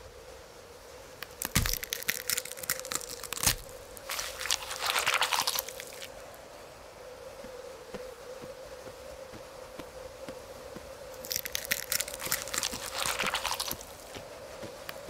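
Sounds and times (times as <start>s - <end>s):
faint steady hum: 0.0s - 15.0s
crackling crunching clicks: 1.2s - 6.2s, 11.1s - 14.2s.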